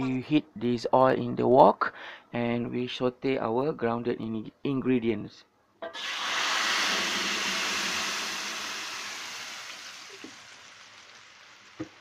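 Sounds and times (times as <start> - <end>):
paste sizzling in hot oil: 5.9 - 12.0.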